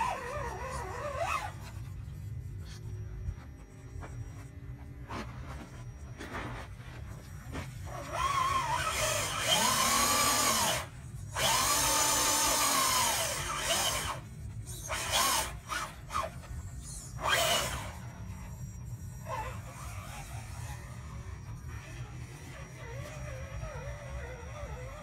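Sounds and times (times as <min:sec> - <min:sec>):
rc truck motor whining: 0:00.0 - 0:25.0.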